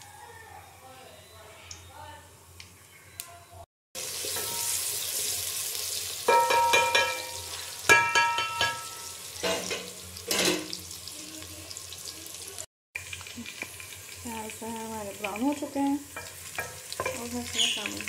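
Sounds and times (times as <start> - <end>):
onions sizzling in hot fat: 4.0 - 18.0
spoon knocking ringing pot: 6.3 - 9.1.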